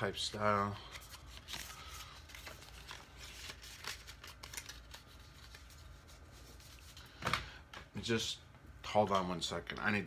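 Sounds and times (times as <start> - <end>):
paper envelope rustling: 0.3 - 7.0.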